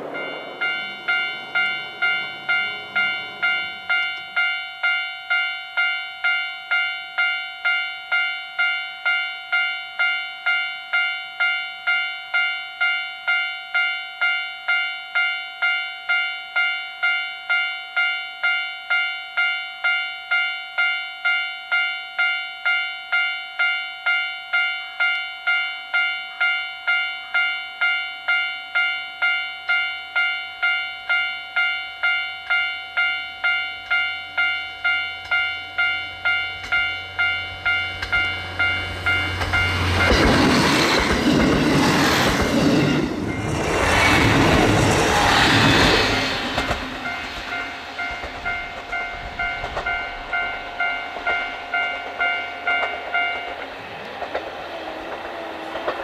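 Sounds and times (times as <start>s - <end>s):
railcar engine rumble: 0.0s - 8.2s, 29.2s - 56.0s
railcar passing rush: 0.0s - 13.4s, 26.0s - 56.0s
level crossing bell ringing: 0.0s - 40.6s, 46.0s - 53.6s.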